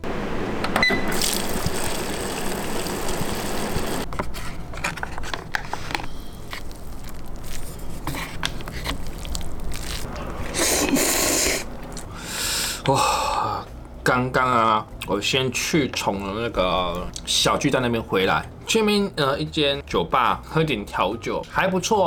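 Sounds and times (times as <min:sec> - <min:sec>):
dispenser beep: 0:00.7 - 0:01.4
hot water pouring into cup: 0:01.1 - 0:04.1
paper lid peeling: 0:04.1 - 0:11.0
chopsticks stirring noodles: 0:04.8 - 0:12.1.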